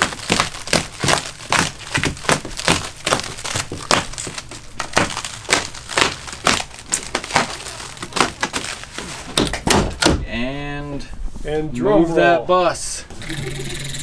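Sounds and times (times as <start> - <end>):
plastic wrap crinkling: 0.0 - 10.1.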